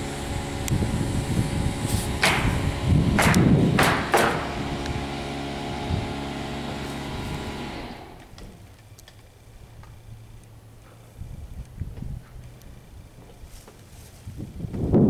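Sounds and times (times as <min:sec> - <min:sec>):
engine running steadily: 0:00.0 - 0:14.2
knocks: 0:02.2 - 0:02.6, 0:03.2 - 0:04.6.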